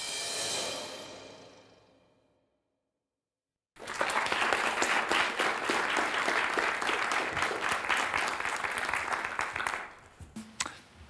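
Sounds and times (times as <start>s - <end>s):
audience applauding: 3.8s - 10.1s.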